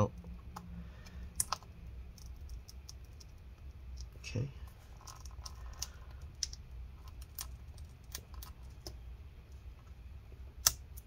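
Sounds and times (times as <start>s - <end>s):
clicks and scrapes prying battery: 1.3s - 4.1s.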